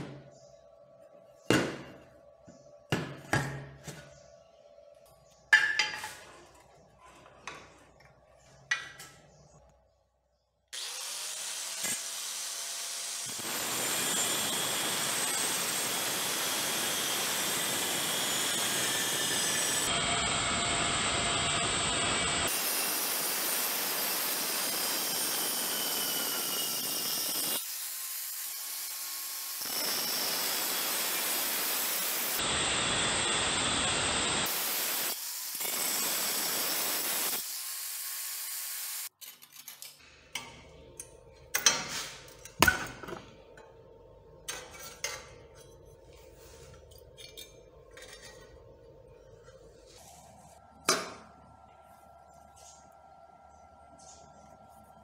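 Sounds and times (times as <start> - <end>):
angle grinder cutting steel: 10.8 - 39.1.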